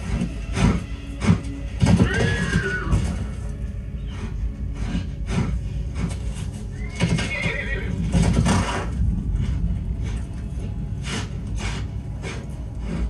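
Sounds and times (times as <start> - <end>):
hoof thuds and stamps: 0.0 - 3.5, 7.9 - 9.0
horse neighing: 1.8 - 3.4, 6.7 - 8.9.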